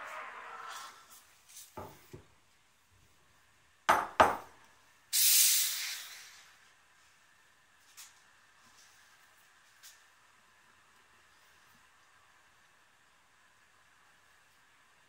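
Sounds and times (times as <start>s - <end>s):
steam wand hissing: 5.1s - 6.6s.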